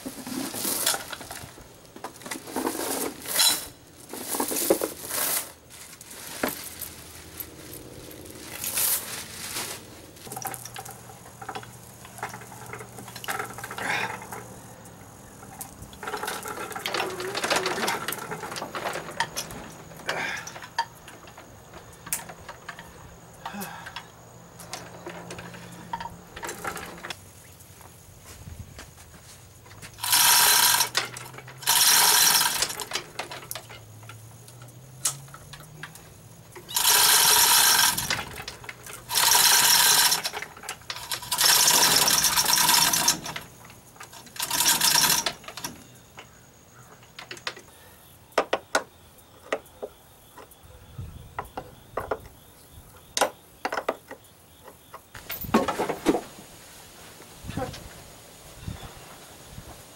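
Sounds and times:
chain hoist rattling and ratcheting: 0:00.1 - 0:05.6, 0:10.2 - 0:27.2, 0:30.0 - 0:46.1.

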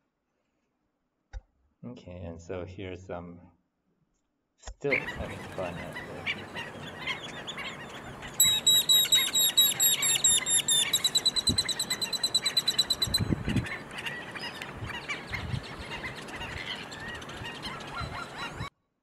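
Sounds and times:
soft bird chatter: 0:04.8 - 0:18.7
sharp high bird yips: 0:06.0 - 0:18.7.

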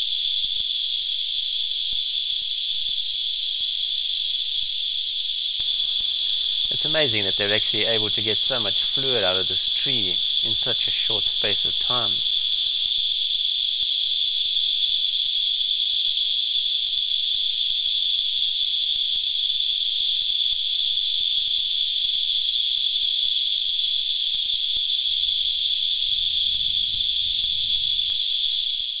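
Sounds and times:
cicadas singing: 0:00.0 - 0:14.0.

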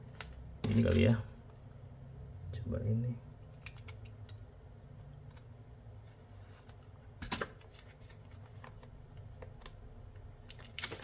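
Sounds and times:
plastic wrapping crinkling: 0:10.3 - 0:11.0.

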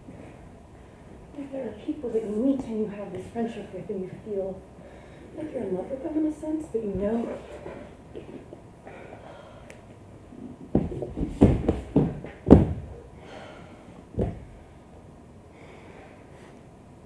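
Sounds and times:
bodies thudding on stage floor: 0:10.7 - 0:13.0, 0:14.2 - 0:14.5.

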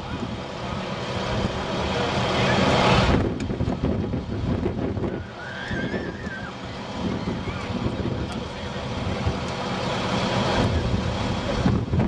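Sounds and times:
loud hissing rush: 0:00.0 - 0:12.0
low engine rumble: 0:00.0 - 0:12.0.

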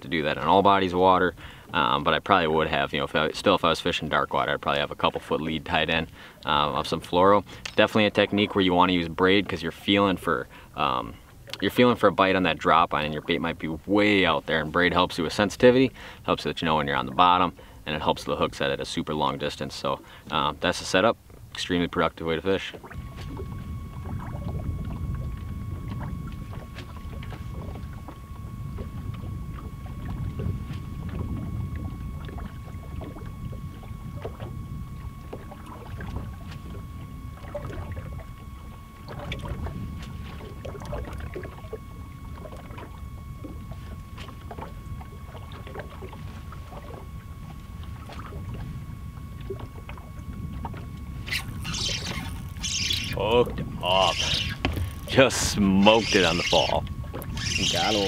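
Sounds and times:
faint high whine: 0:00.0 - 0:58.0
rumble of wind and water: 0:00.0 - 0:58.0
fishing reel clicks and taps: 0:51.2 - 0:53.2, 0:54.2 - 0:55.1.

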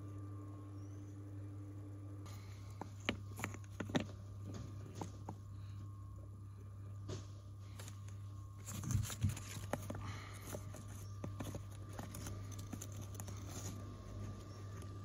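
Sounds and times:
stones clicking and scraping: 0:02.8 - 0:05.4, 0:07.8 - 0:15.0.

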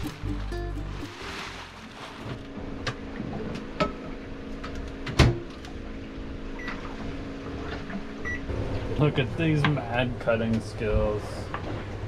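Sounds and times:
microwave oven humming: 0:02.4 - 0:10.2.

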